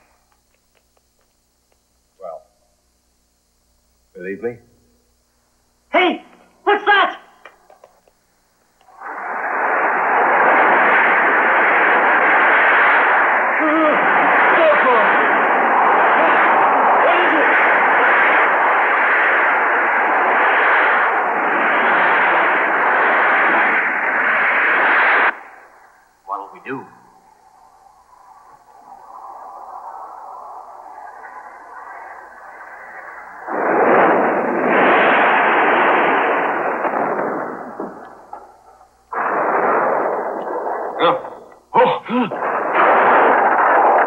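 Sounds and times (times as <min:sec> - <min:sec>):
loud explosion-like blasts: 0:08.9 - 0:25.6, 0:33.2 - 0:44.0.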